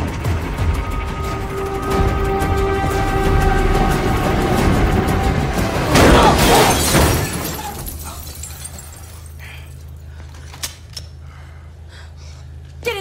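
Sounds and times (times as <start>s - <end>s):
tense film score music: 0.0s - 8.3s
loud crash with shattering: 4.1s - 9.4s.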